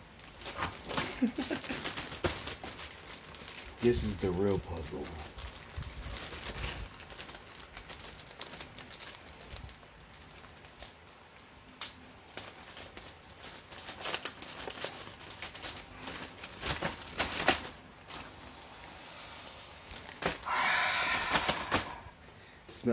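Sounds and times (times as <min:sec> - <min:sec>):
plastic bag crinkling: 0:00.0 - 0:19.0, 0:19.7 - 0:22.1.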